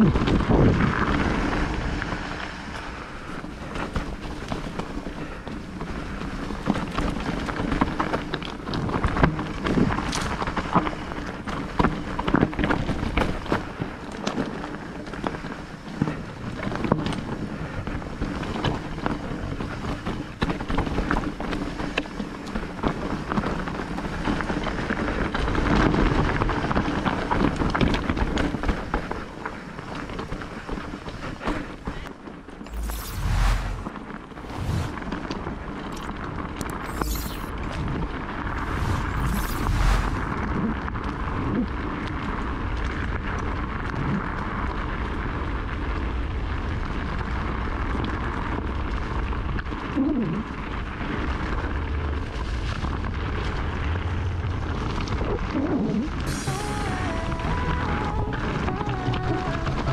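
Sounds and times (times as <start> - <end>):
wind on microphone: 0.0 - 2.8, 36.0 - 41.7
bike tyres rolling on stones: 0.0 - 32.7, 35.0 - 36.9, 40.0 - 56.3
bike knocking and rattling: 2.7 - 32.4.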